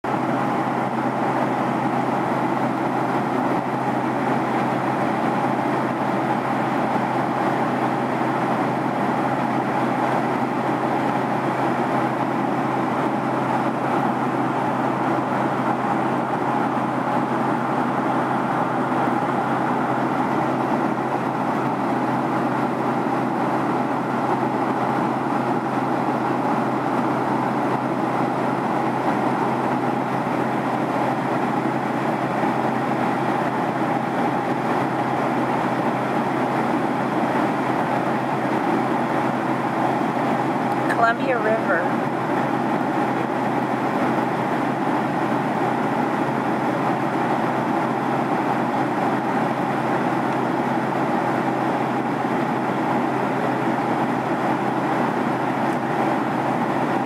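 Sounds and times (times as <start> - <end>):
jet engines and airflow rushing: 0.0 - 57.0
low steady hum: 40.5 - 44.6.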